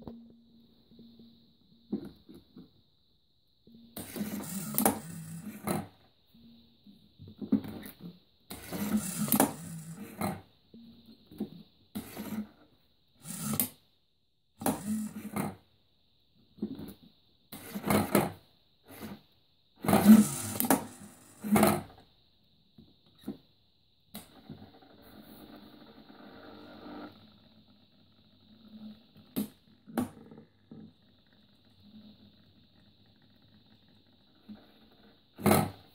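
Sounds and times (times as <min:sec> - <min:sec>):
small servo whirring: 0:04.0 - 0:05.9, 0:08.5 - 0:10.4, 0:13.2 - 0:13.8, 0:14.6 - 0:15.6, 0:19.8 - 0:21.9.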